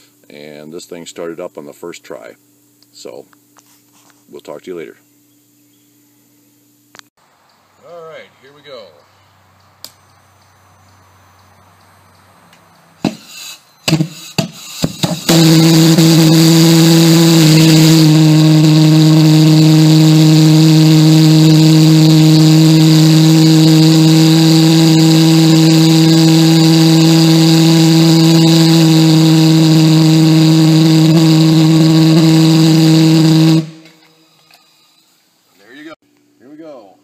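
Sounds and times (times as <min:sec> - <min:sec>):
pulsejet engine droning: 0:09.9 - 0:34.3.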